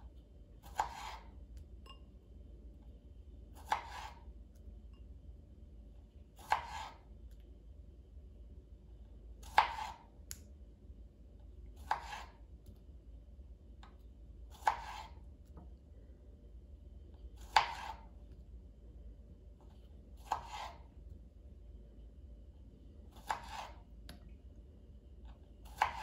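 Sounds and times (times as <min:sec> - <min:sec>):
knife cutting on plastic board: 0:00.6 - 0:01.3, 0:03.6 - 0:04.3, 0:06.4 - 0:07.0, 0:09.4 - 0:10.1, 0:11.8 - 0:12.4, 0:14.5 - 0:15.2, 0:17.4 - 0:18.1, 0:20.2 - 0:20.9, 0:23.1 - 0:23.8, 0:25.6 - 0:26.0.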